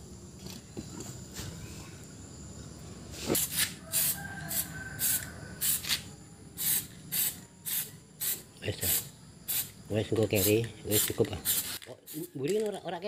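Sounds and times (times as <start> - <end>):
spray can hissing: 3.3 - 12.4.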